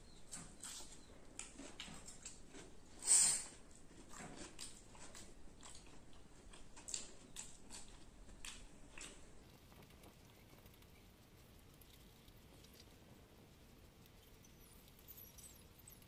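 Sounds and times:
person chewing and biting: 0.3 - 9.5.

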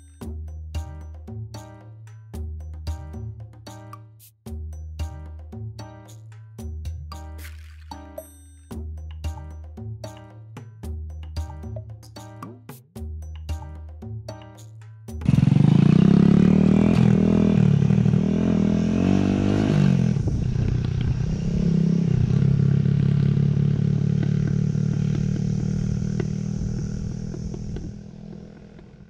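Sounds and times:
small motorcycle engine revving: 15.2 - 29.0.

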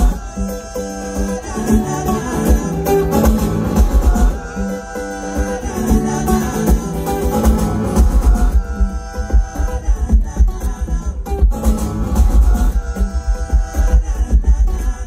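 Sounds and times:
acoustic guitar strumming: 0.0 - 15.0
thumping beat: 5.8 - 15.0.

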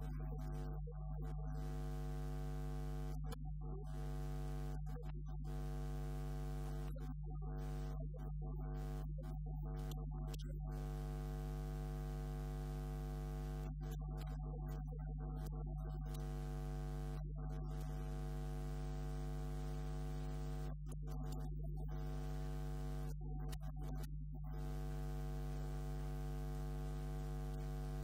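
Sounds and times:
electrical hum: 18.1 - 20.7, 24.6 - 28.0.

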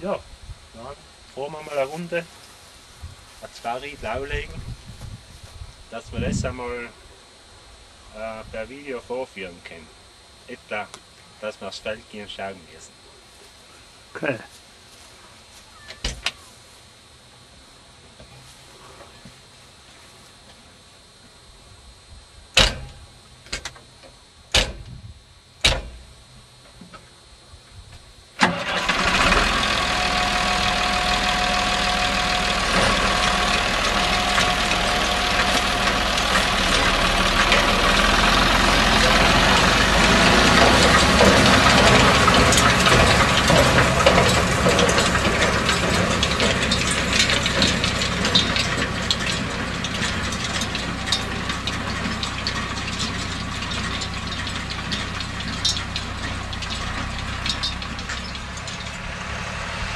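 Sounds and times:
machinery clicks and rattles: 28.4 - 59.2
tractor diesel engine running: 28.4 - 59.9.

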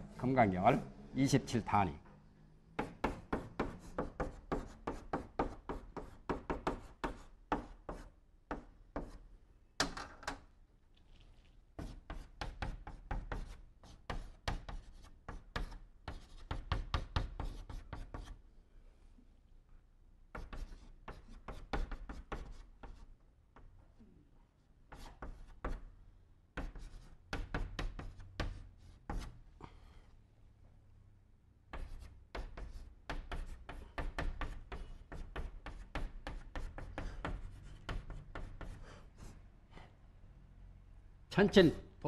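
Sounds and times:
chalk tapping on blackboard: 2.8 - 9.2, 11.8 - 18.4, 20.3 - 23.7, 24.9 - 25.9, 26.6 - 29.4, 31.7 - 39.4.

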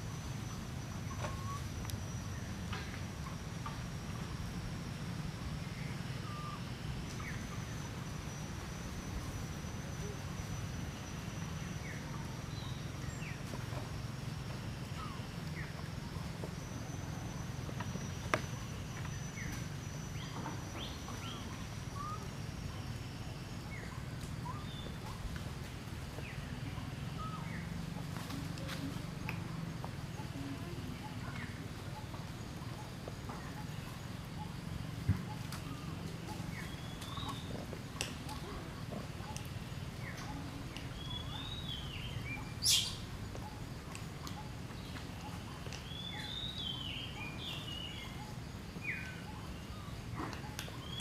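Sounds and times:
thin steady insect tone: 0.0 - 51.0
bird chirps: 0.5 - 3.8, 30.1 - 43.6, 44.2 - 51.0.

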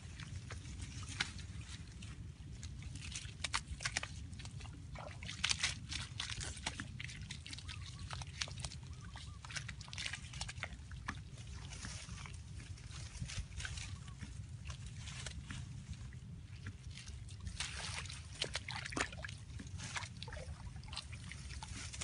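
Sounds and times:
wet mud squelching: 0.0 - 22.0
plants rustling and snapping: 0.9 - 1.8, 2.9 - 4.6.

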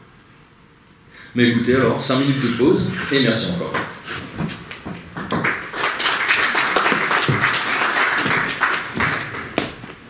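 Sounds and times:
audience applauding: 5.0 - 9.9.

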